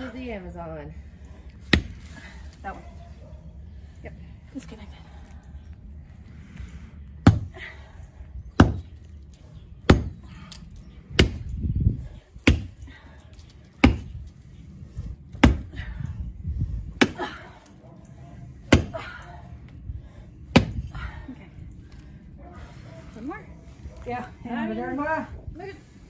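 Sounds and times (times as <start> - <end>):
axe chopping into roots: 12.4 - 12.7, 13.8 - 14.1, 15.4 - 15.7.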